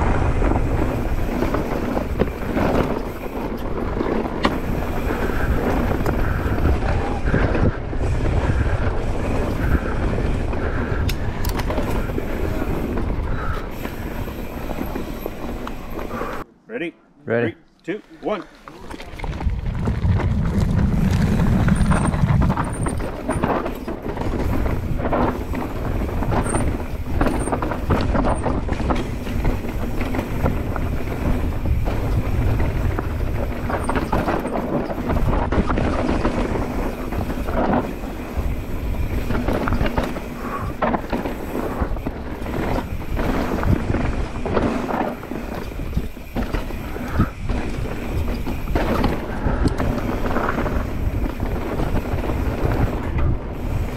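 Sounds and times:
bike chain and frame clattering: 0:00.0 - 0:16.4, 0:18.6 - 0:53.9
wind buffeting microphone: 0:00.0 - 0:16.4, 0:18.9 - 0:53.9
tyres on dirt: 0:00.0 - 0:16.5, 0:18.0 - 0:53.9.

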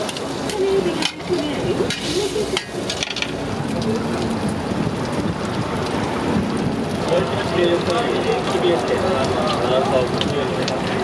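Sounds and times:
mushrooms sizzling on a griddle: 0:00.0 - 0:11.0
metal spatula clicks and scrapes: 0:01.0 - 0:03.4.

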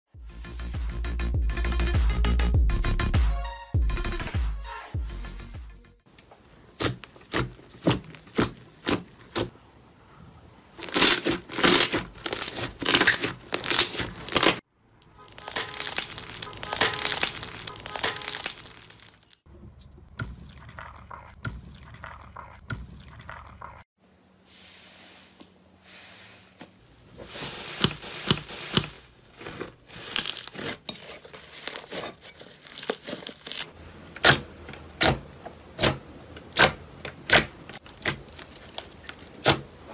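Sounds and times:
slime popping and crackling: 0:06.8 - 0:09.5, 0:10.8 - 0:14.6, 0:15.3 - 0:19.4, 0:31.5 - 0:33.6.

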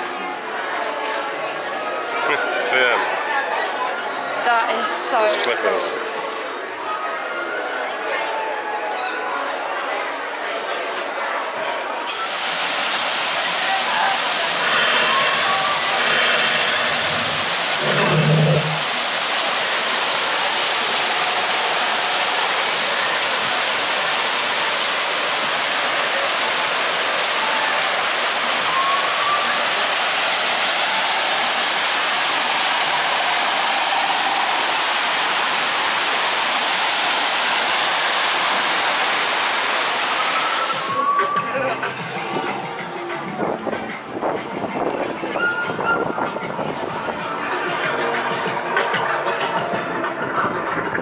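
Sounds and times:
water cascading into pool: 0:12.0 - 0:41.5.

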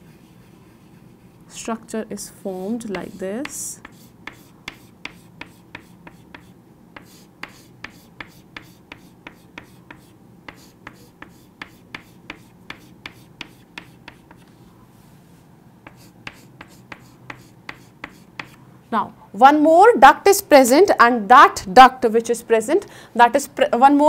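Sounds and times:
chalk tapping on chalkboard: 0:02.9 - 0:14.5, 0:15.8 - 0:18.6.

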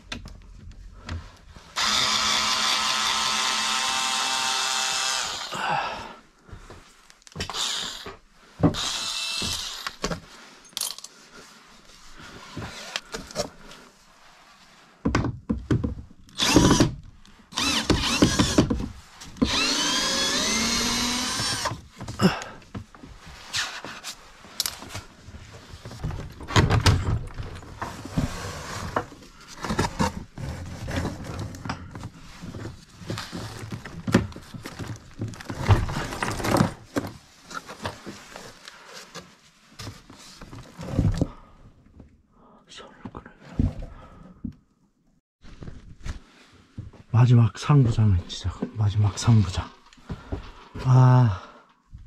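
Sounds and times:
power drill running: 0:01.8 - 0:05.5, 0:07.5 - 0:08.0, 0:08.8 - 0:09.9, 0:16.4 - 0:18.7, 0:19.4 - 0:21.8
knocks and clatter of wood: 0:15.0 - 0:17.0, 0:17.8 - 0:19.6, 0:24.6 - 0:38.3.

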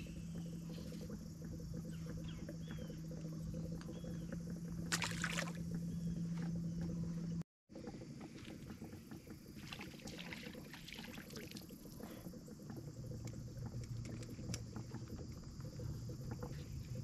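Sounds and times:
low steady rumble: 0:00.0 - 0:17.0
water dripping: 0:00.0 - 0:17.0
fish splashing at the surface: 0:04.8 - 0:05.7.

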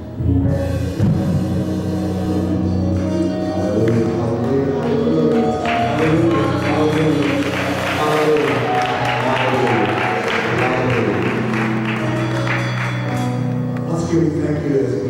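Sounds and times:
bright rhythmic layer: 0:00.0 - 0:15.0
held low bass notes: 0:00.0 - 0:15.0
worship music: 0:00.0 - 0:15.0.

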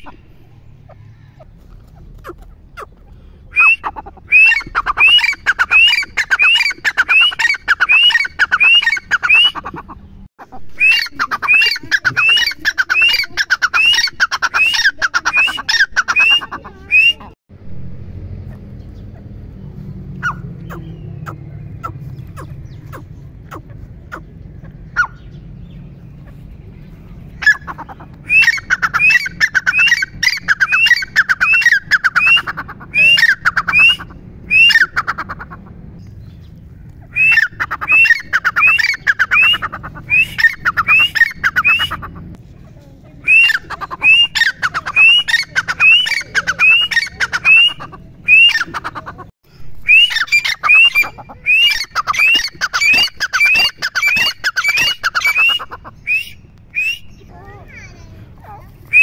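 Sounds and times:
francolin calling shrill notes: 0:49.8 - 0:57.3.

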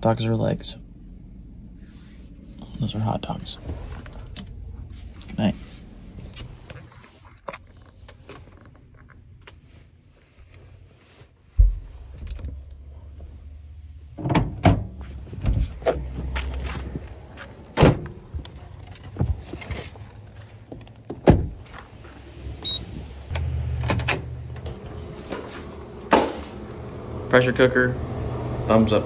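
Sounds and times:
rustling of gear and bedding: 0:15.0 - 0:23.0
doors shutting: 0:17.7 - 0:19.9, 0:20.6 - 0:27.1.

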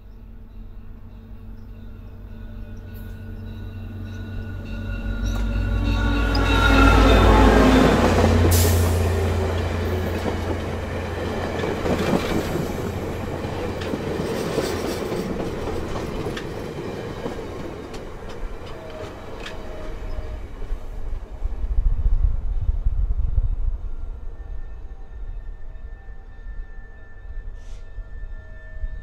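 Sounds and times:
faint train squeals: 0:00.0 - 0:21.2, 0:22.6 - 0:29.0
diesel locomotive engine drone: 0:00.0 - 0:29.0
train wheels clicking over rail joints: 0:05.2 - 0:20.2.

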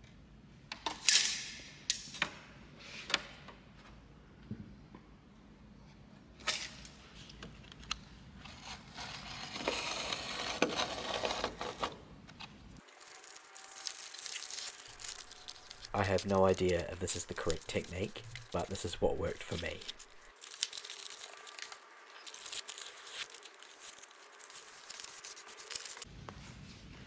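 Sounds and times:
plastic film crinkling: 0:12.8 - 0:26.1.

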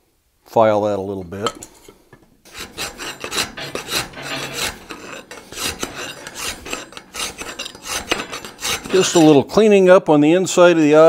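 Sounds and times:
hand file scraping metal: 0:01.3 - 0:09.5.

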